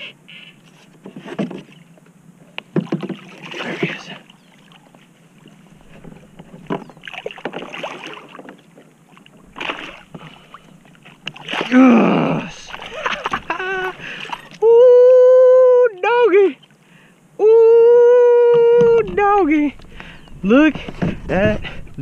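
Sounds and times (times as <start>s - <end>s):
fish splashing at surface: 9.5s - 14.6s.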